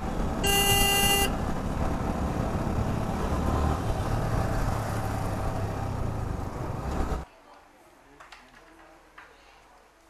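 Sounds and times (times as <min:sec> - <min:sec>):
road traffic rumble: 0:00.0 - 0:07.3.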